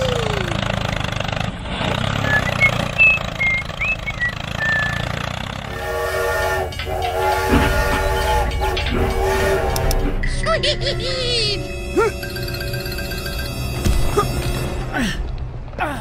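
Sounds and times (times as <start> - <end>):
steam train whistle: 5.7 - 10.0.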